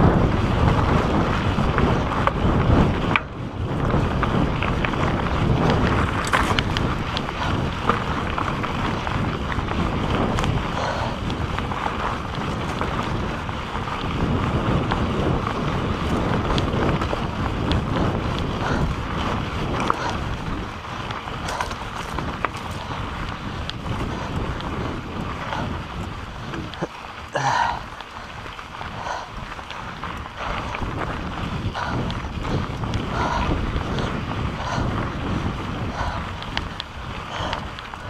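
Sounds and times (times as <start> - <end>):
bike rattling: 0.0 - 38.0
wind over microphone: 0.0 - 38.0
tyres crunching over rocky dirt: 3.8 - 10.7, 11.3 - 31.7.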